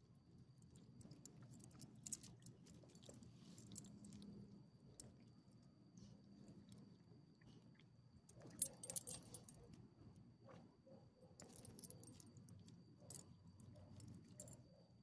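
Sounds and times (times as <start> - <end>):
dog collar tags jingling: 8.6 - 9.6, 11.4 - 12.3.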